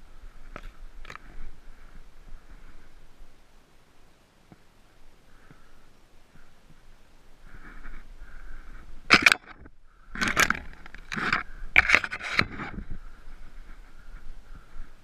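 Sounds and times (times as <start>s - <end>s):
short scraping noises: 10.2s - 12.9s.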